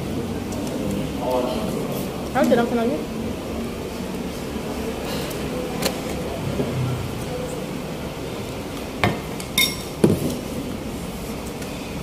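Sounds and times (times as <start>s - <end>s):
room noise: 0.0s - 12.0s
metal spoon clinking on plates: 9.6s - 9.9s.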